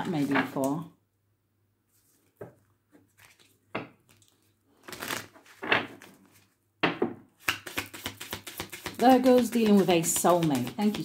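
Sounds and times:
cards shuffling: 1.9s - 6.6s, 7.4s - 11.0s
cards snapping: 7.4s - 9.8s.

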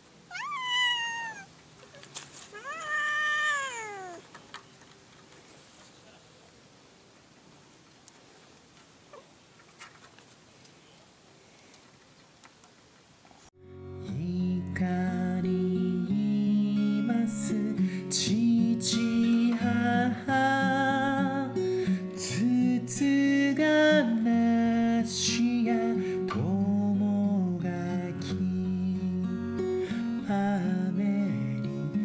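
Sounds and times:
strummed acoustic guitar: 13.7s - 32.0s.

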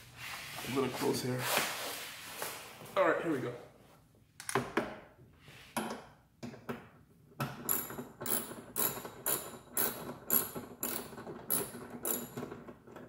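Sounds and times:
ratchet wrench clicking: 7.7s - 12.4s.

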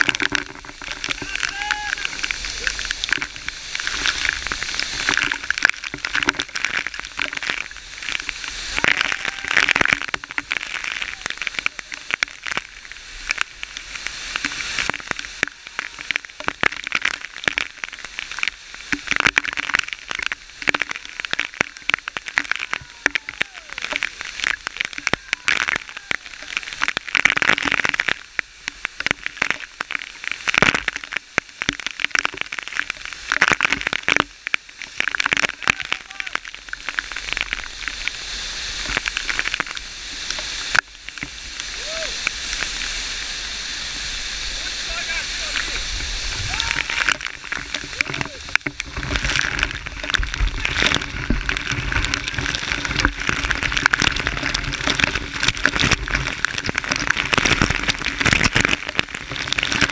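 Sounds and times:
crackling and clicking: 0.0s - 42.8s, 44.9s - 59.9s
steady hiss: 35.5s - 52.0s.

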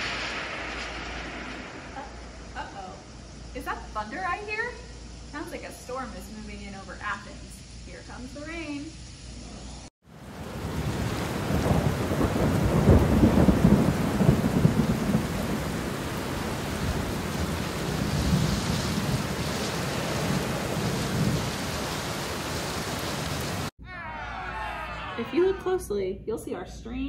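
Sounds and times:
thunder rolling: 0.0s - 5.3s, 10.1s - 23.7s
steady rain: 10.0s - 23.7s.

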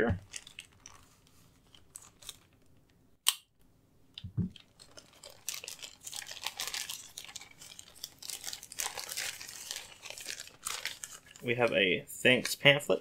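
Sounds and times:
plastic mailer crinkling: 4.5s - 11.8s.

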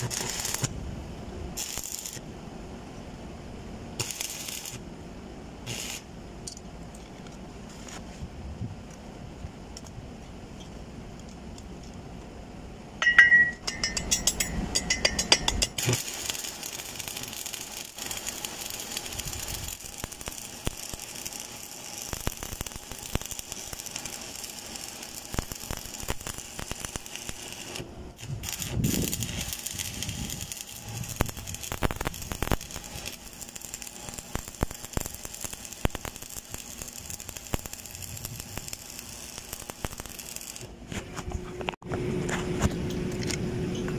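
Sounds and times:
welding arc crackling and sizzling: 0.0s - 0.8s, 1.5s - 2.2s, 4.0s - 4.8s, 5.6s - 6.1s, 13.1s - 40.8s.

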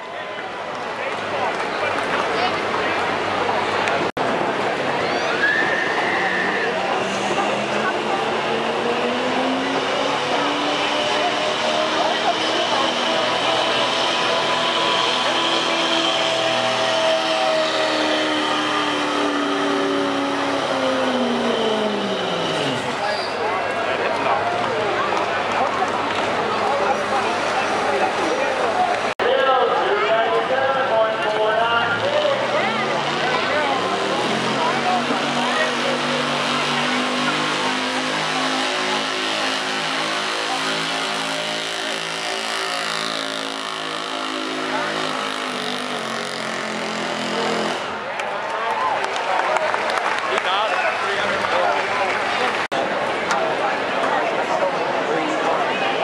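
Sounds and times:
truck engine revving under load: 6.0s - 23.9s, 31.8s - 48.2s.

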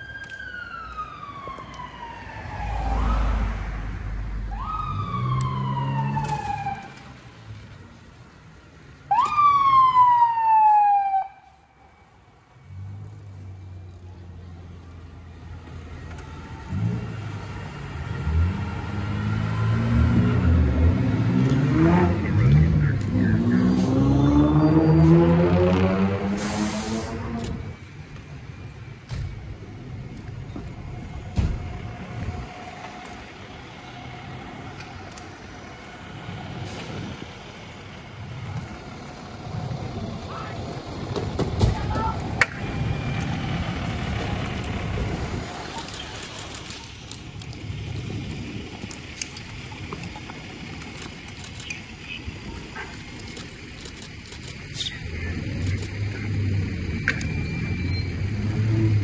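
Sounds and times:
fire engine siren winding down: 0.0s - 7.2s, 9.1s - 11.9s, 15.7s - 27.9s
truck engine droning: 11.8s - 59.0s.

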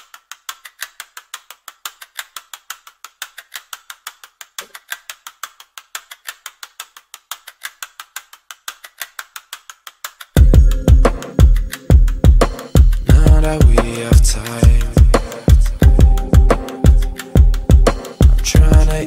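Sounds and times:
rapid mechanical clicking: 0.0s - 10.5s.

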